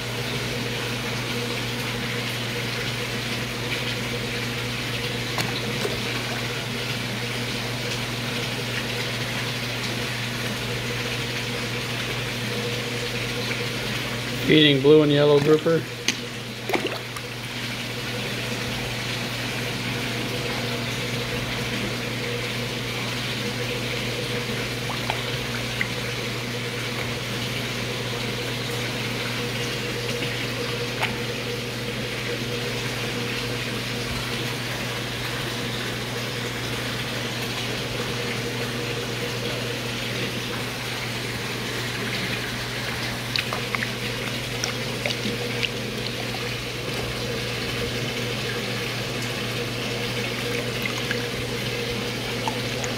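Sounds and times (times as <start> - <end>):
pump humming: 0.0 - 52.9
water rushing: 1.0 - 19.6, 22.8 - 52.9
small water splashes: 15.1 - 18.0, 23.1 - 33.1, 39.8 - 52.9.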